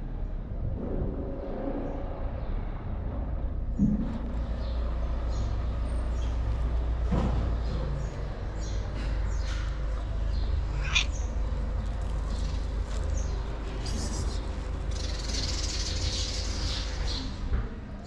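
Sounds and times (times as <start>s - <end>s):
steady low rumble: 9.8s - 16.9s
cat meowing: 10.7s - 11.2s.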